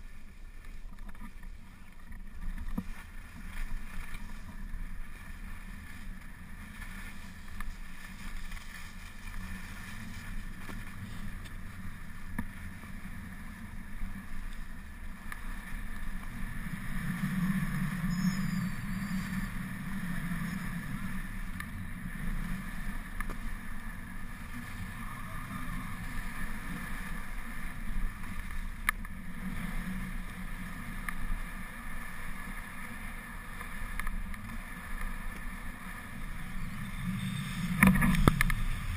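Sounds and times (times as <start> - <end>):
skis scraping over snow: 0.0 - 38.9
wind on microphone: 36.2 - 38.9.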